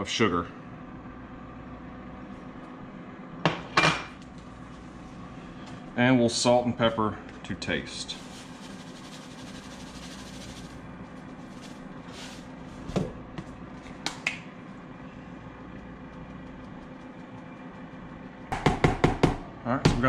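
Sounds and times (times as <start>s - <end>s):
salt pouring onto cabbage: 8.1s - 10.8s.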